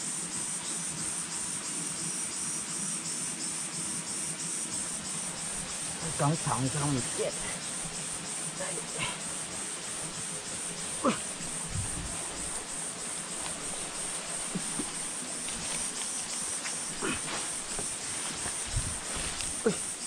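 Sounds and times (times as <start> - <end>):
insects buzzing: 0.0 - 20.0
scuffs and knocks: 11.1 - 19.7.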